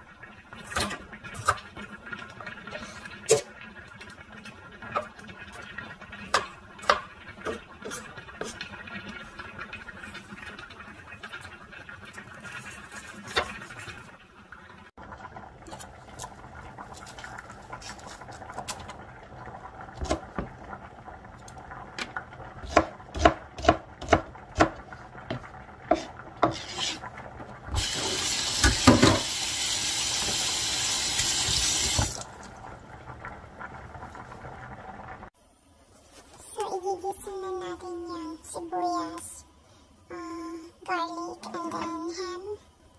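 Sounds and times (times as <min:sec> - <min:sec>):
water tap running into sink: 0:27.5 - 0:32.6
kitchen knocks and clatters: 0:28.6 - 0:29.3.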